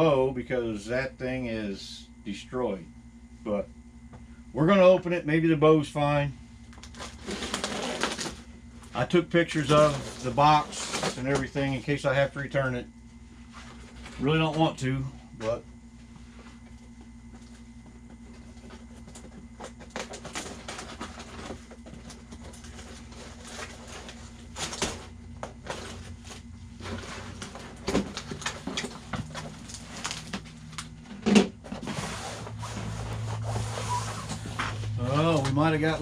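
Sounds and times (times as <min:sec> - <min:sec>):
steady low hum: 0:00.0 - 0:36.0
cardboard rustling and tearing: 0:06.8 - 0:08.5, 0:09.6 - 0:11.4, 0:19.7 - 0:30.8.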